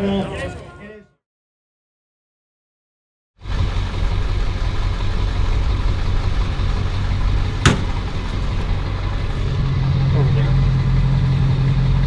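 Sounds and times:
truck engine idling: 3.4 - 12.0
deep steady hum: 4.0 - 12.0
sharp knock: 7.6 - 8.1.

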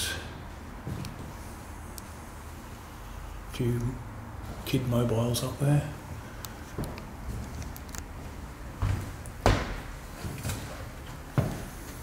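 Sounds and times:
low background noise: 0.0 - 12.0
dull thumps: 8.8 - 9.9.

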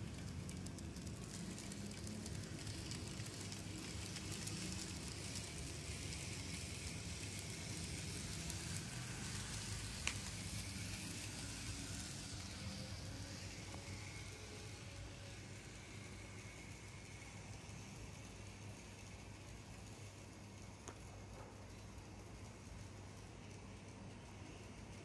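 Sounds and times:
model train wheels clicking on rails: 0.0 - 25.0
small electric motor humming: 1.3 - 19.8.

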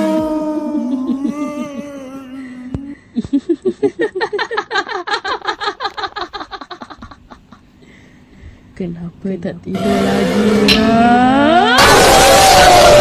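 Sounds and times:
rapid ha-ha-ha laugh: 3.0 - 7.7
held music tone: 9.7 - 11.8.

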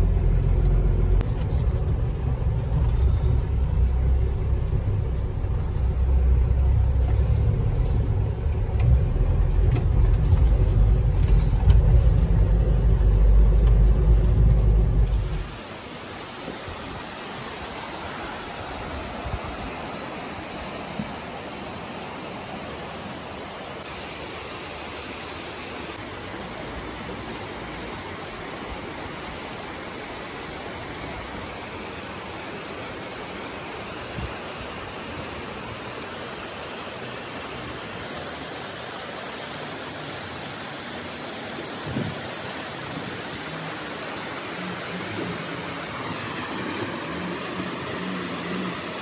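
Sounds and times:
faint vehicle engine: 0.0 - 15.8, 22.1 - 49.0
river rushing over rocks: 13.9 - 49.0.

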